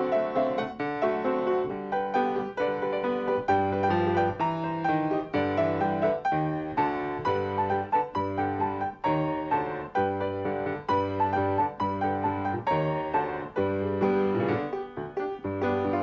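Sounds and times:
solo piano music: 0.0 - 16.0.

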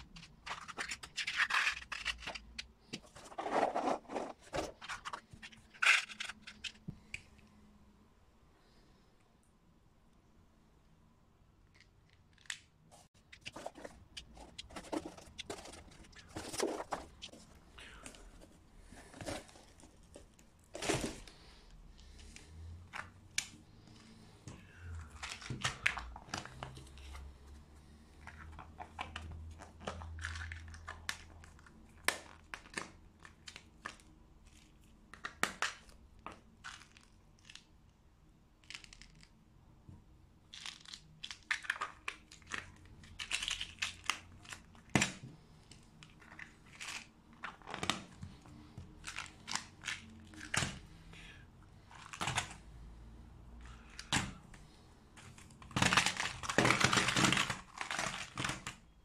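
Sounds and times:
rustling: 0.0 - 7.1, 12.9 - 22.5.

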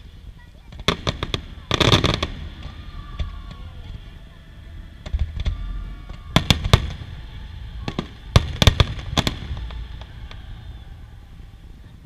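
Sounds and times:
low rumble: 1.2 - 12.0
firework shells bursting: 5.0 - 11.4.

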